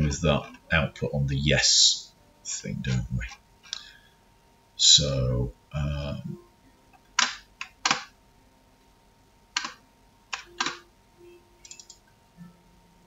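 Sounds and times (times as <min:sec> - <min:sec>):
mouse and key clicks: 0:09.6 - 0:10.8, 0:11.6 - 0:12.0.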